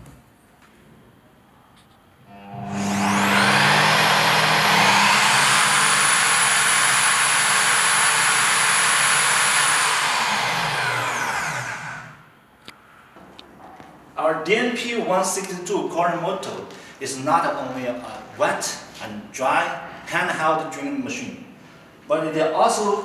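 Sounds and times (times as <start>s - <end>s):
core drill motor whining: 2.3s - 12.3s.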